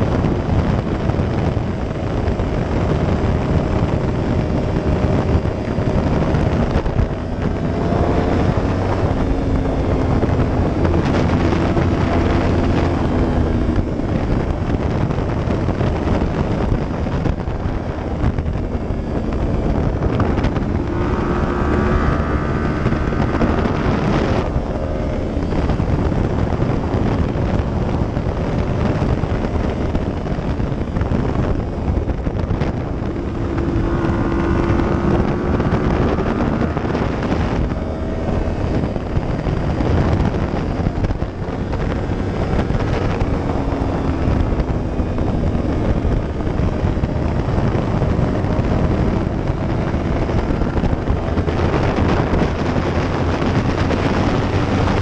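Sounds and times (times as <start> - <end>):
motorcycle engine revving: 0.0 - 55.0
wind rush on microphone: 0.0 - 55.0.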